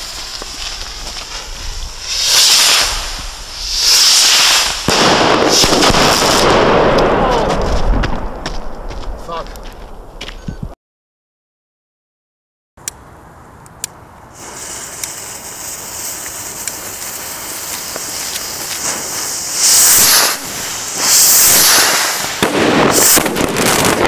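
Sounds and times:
firework rocket hissing: 0:00.0 - 0:07.0, 0:14.3 - 0:24.0.

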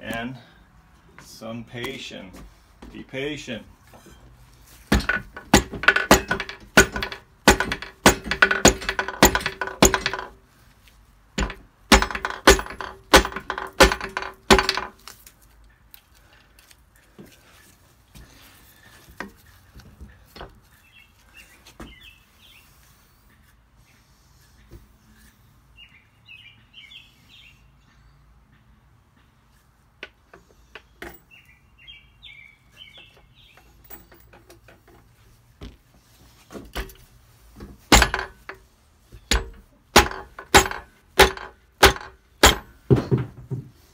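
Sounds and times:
rubber mallet knocking on metal: 0:04.9 - 0:10.3, 0:11.4 - 0:14.9, 0:39.3 - 0:43.6.

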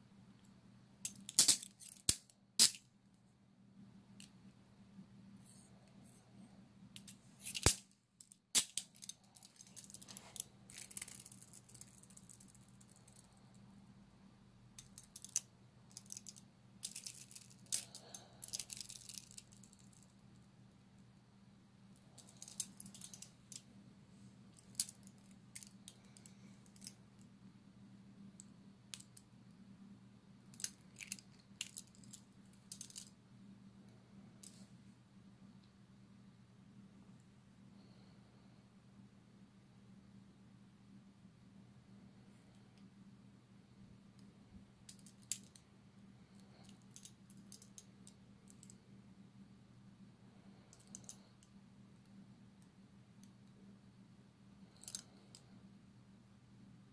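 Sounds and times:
handcuffs clicking and rattling: 0:01.1 - 0:02.8, 0:07.0 - 0:13.4, 0:14.8 - 0:20.1, 0:22.1 - 0:23.6, 0:24.6 - 0:27.0, 0:30.5 - 0:33.1, 0:44.9 - 0:45.6, 0:46.5 - 0:47.9, 0:50.7 - 0:51.2, 0:54.7 - 0:55.4.

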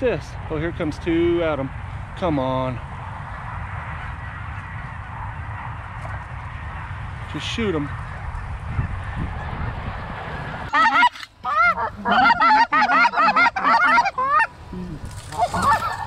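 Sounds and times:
wind rumbling on microphone: 0:00.0 - 0:16.0
geese yelping calls: 0:10.4 - 0:16.0.

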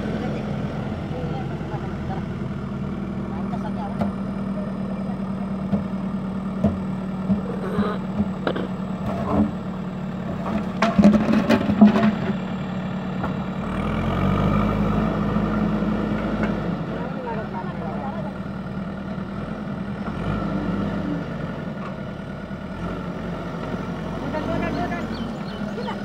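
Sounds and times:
diesel engine running: 0:00.0 - 0:26.0
sharp knocks and clatter: 0:10.4 - 0:12.4.

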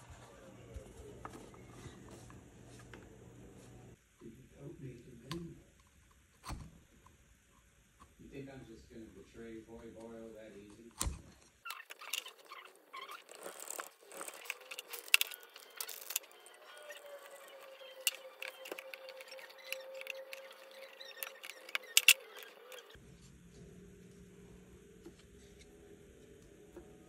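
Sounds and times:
leather strips rustling and scratching: 0:11.7 - 0:23.0.

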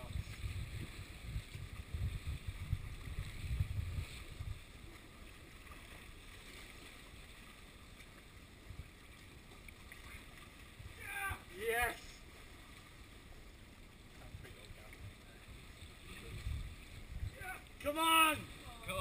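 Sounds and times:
wind buffeting microphone: 0:00.0 - 0:05.2, 0:14.2 - 0:19.0.

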